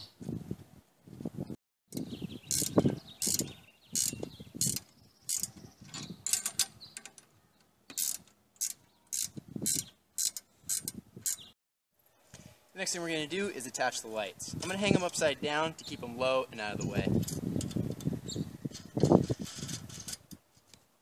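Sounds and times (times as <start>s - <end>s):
wrench clicking on metal: 2.5s - 7.3s, 7.9s - 11.5s.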